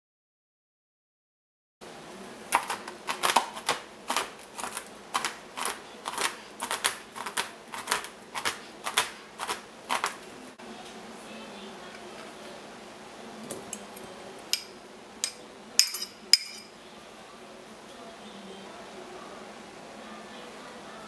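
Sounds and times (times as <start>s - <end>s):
knife chopping nuts on cutting board: 2.6s - 10.2s.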